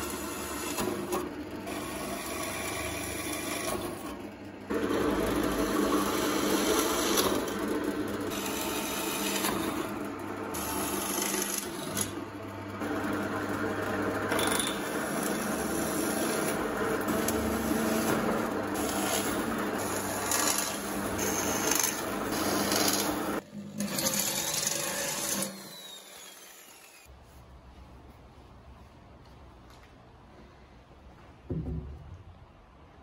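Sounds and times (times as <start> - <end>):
drill press motor hum: 0.0 - 27.1
drill bit grinding through steel: 14.3 - 27.1.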